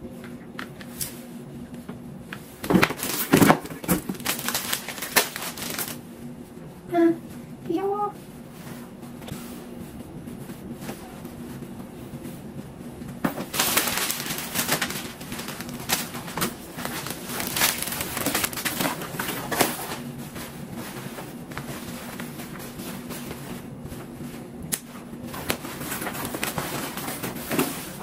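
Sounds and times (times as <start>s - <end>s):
low steady hum: 0.0s - 28.0s
packaging rustling and crinkling: 2.6s - 6.0s, 13.3s - 23.4s, 25.3s - 28.0s.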